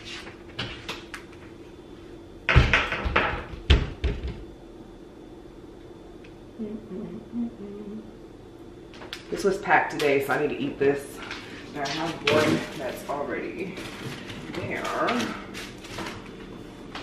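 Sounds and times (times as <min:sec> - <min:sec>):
faint steady hum: 0:00.0 - 0:17.0
thumps and knocks of groceries: 0:02.5 - 0:04.5.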